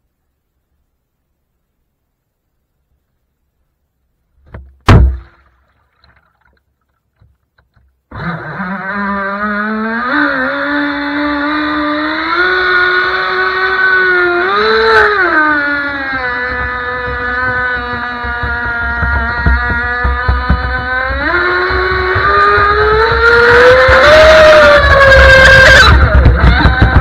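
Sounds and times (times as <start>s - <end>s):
sharp knock: 4.4s - 5.5s
electric motor whine: 8.1s - 27.0s.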